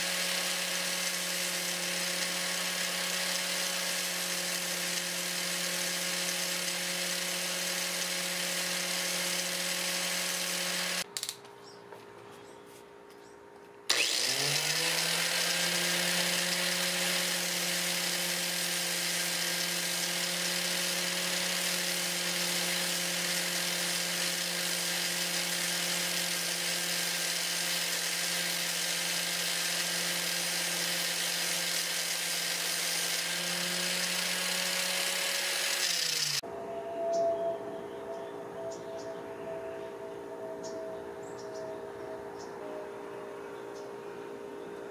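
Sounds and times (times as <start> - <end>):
angle grinder whining: 0.0 - 11.1, 13.9 - 36.8.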